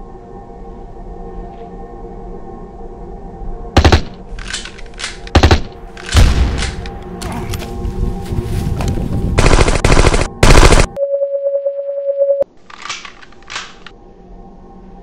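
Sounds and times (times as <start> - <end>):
faint music drone: 0.0 - 15.0
steady electronic beep: 11.0 - 12.4.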